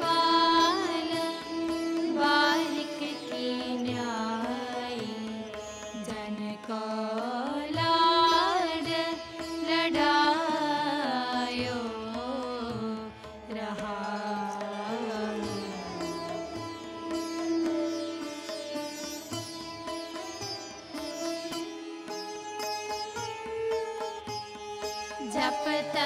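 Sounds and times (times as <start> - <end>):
sliding string melody: 0.0 - 6.6, 13.8 - 26.0
tanpura drone: 0.0 - 26.0.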